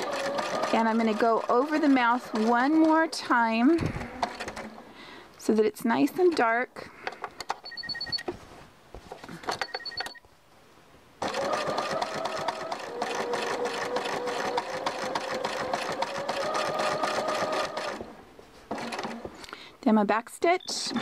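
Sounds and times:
sewing machine stitching: 0:00.0 - 0:04.8, 0:11.2 - 0:19.5.

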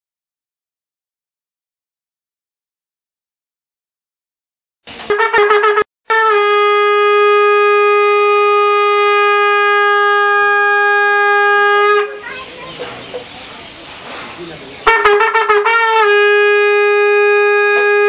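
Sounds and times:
brass horn blasts: 0:05.0 - 0:12.2, 0:14.8 - 0:18.0.

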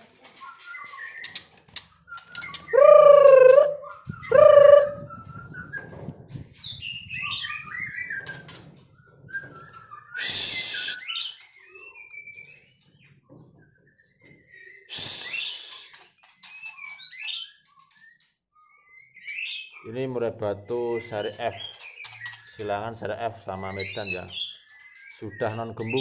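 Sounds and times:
bird singing whistled phrases: 0:02.0 - 0:08.5, 0:09.3 - 0:12.8, 0:14.5 - 0:19.9, 0:23.6 - 0:26.0
harsh bird calls: 0:02.2 - 0:05.3, 0:10.1 - 0:12.9, 0:19.0 - 0:26.0.

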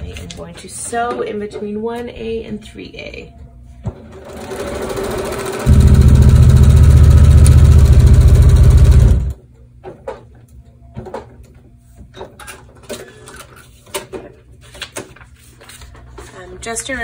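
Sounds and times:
sewing machine stitching: 0:04.0 - 0:09.3.

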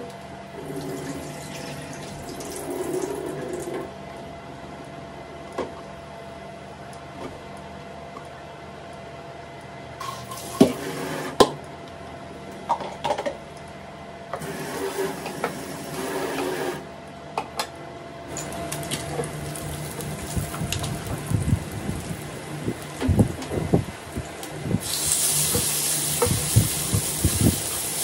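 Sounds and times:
steady hum: 0:00.0 - 0:28.0
tap water running into sink: 0:24.8 - 0:28.0.

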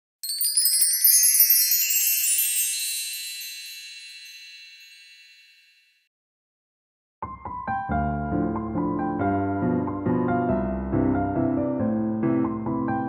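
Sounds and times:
bell-like chime tinkles: 0:00.2 - 0:06.1.

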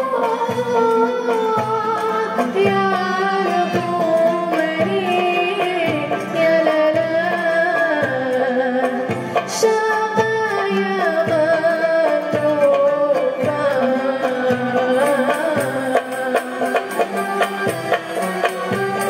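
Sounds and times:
bowed strings: 0:00.0 - 0:19.0
ouds mandolins and guitars: 0:00.0 - 0:19.0
woman singing: 0:00.0 - 0:19.0.

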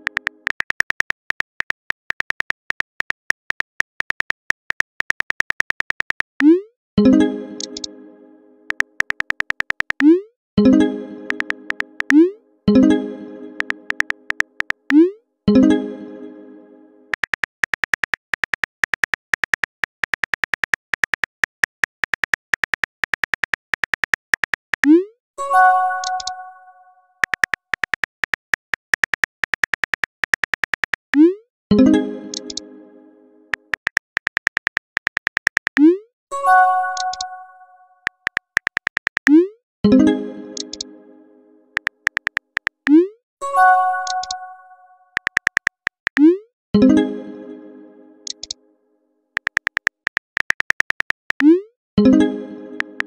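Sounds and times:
phone keyboard clicks: 0:00.0 - 0:06.4, 0:07.6 - 0:07.9, 0:08.7 - 0:10.1, 0:11.3 - 0:12.2, 0:13.6 - 0:15.0, 0:17.1 - 0:24.9, 0:26.0 - 0:26.3, 0:27.2 - 0:31.1, 0:32.3 - 0:32.6, 0:33.5 - 0:35.9, 0:37.0 - 0:37.3, 0:38.0 - 0:39.3, 0:40.6 - 0:40.8, 0:41.8 - 0:42.9, 0:44.0 - 0:44.4, 0:45.1 - 0:46.3, 0:48.3 - 0:48.6, 0:49.4 - 0:51.5.

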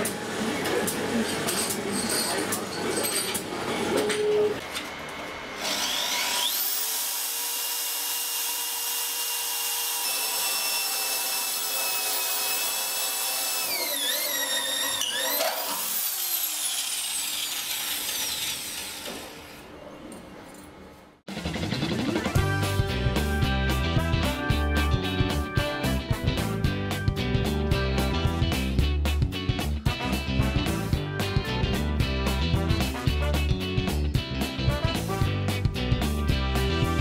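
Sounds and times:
electric drill whining: 0:05.6 - 0:19.4.

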